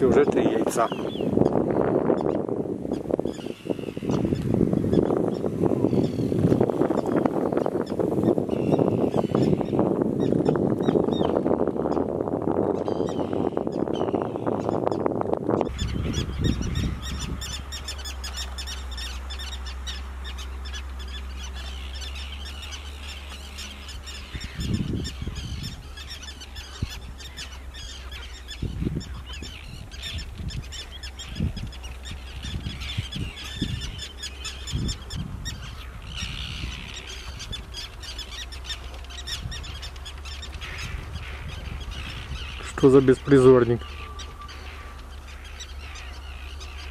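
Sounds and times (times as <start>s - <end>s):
terns calling: 0.0s - 46.9s
low rumble: 15.2s - 46.9s.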